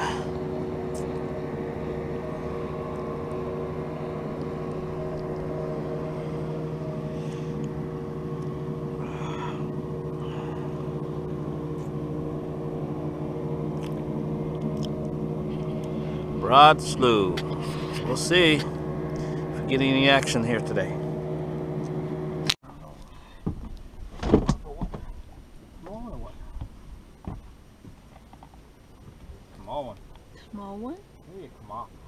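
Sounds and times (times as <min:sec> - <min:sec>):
boat engine humming: 0:00.0 - 0:32.0.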